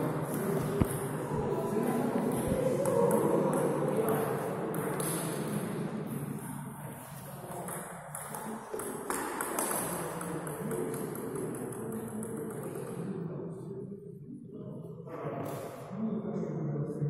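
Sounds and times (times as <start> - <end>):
table tennis ball bouncing on table: 2.4 - 5.6, 7.5 - 13.1
table tennis ball hitting paddles: 4.0 - 5.6, 7.6 - 13.0.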